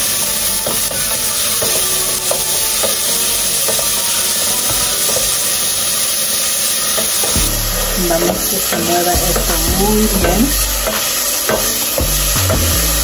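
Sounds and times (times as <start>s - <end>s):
onion sizzling in oil: 0.0s - 13.0s
wooden spoon scraping a pot: 0.6s - 12.0s.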